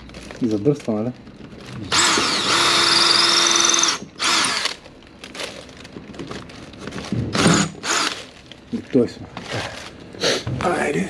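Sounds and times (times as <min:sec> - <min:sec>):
cordless drill whine: 0:01.9 - 0:04.8, 0:07.4 - 0:08.2.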